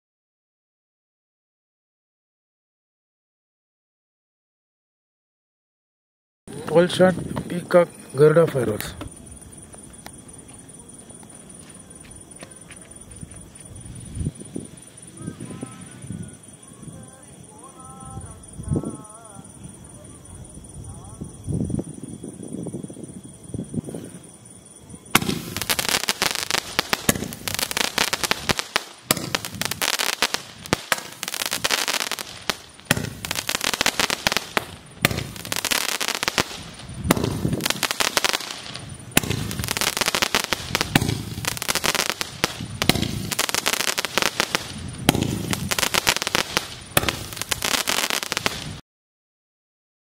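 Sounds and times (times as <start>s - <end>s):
firework bursts: 25.0s - 48.8s
firework crackling: 25.0s - 48.8s.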